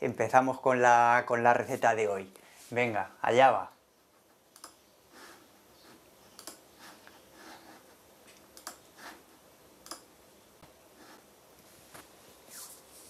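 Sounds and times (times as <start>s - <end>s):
computer mouse and key clicks: 4.5s - 4.8s, 6.3s - 6.7s, 8.3s - 8.9s, 9.8s - 10.1s.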